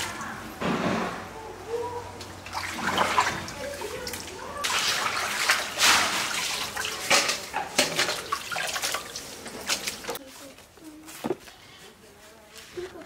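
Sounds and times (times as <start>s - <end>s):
water splashing and pouring: 2.4s - 10.2s.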